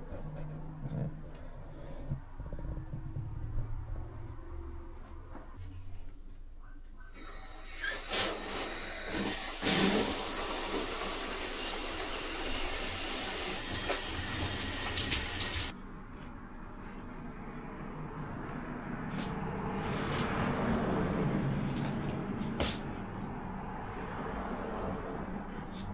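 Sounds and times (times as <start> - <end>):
water running from tub faucet: 7.4 - 15.7.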